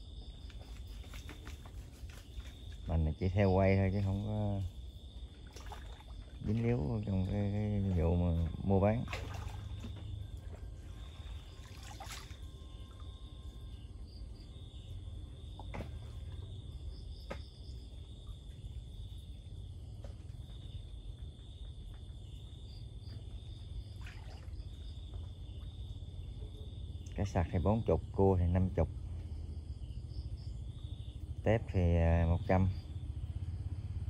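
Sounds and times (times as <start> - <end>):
night insects trilling: 0.0 - 34.0
water splashes: 0.6 - 13.6, 23.8 - 25.8
water trickling: 2.4 - 17.0.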